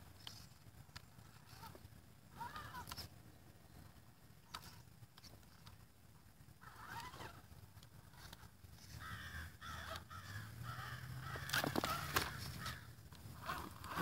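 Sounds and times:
crows cawing: 0:08.9 - 0:13.0.

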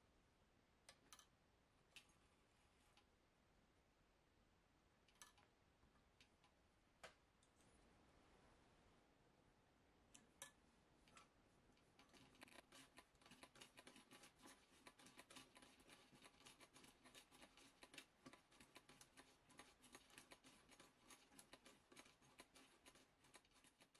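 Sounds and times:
sewing machine stitching: 0:12.0 - 0:23.9.

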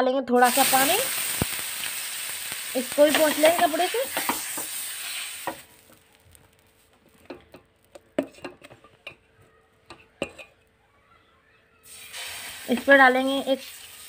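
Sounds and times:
water sizzling on a hot griddle: 0:00.4 - 0:07.9, 0:11.8 - 0:14.0.

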